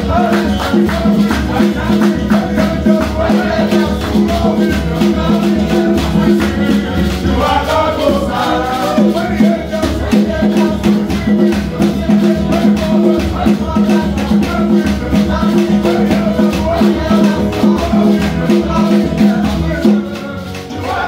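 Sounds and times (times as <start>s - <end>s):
acoustic guitar: 0.0s - 21.0s
keyboard playing: 0.0s - 21.0s
rattling beat: 0.0s - 21.0s
voices singing: 0.0s - 21.0s.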